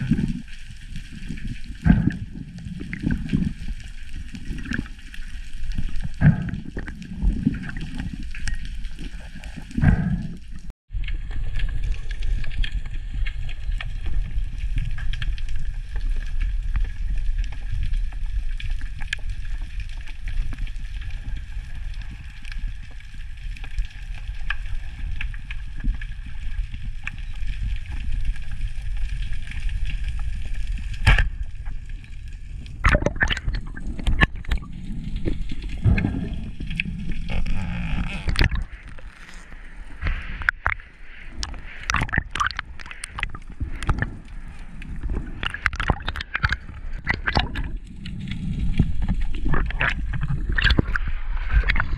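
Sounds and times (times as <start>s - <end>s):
underwater low rumble: 0.0s - 51.9s
water sloshing: 32.8s - 51.9s.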